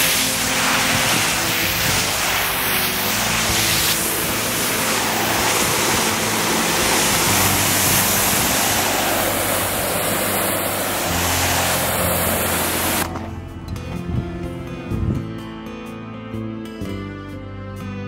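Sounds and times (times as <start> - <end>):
pressure washer water jet hissing: 0.0 - 13.4.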